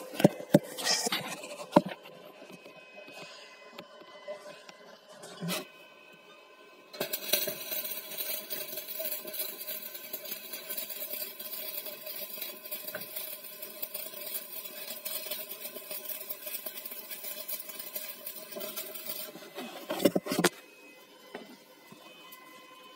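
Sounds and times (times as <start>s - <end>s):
welding arc crackling: 6.9s - 20.6s.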